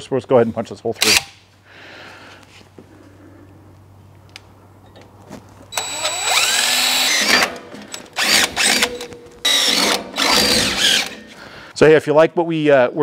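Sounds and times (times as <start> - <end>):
cordless drill whining: 5.7 - 11.3.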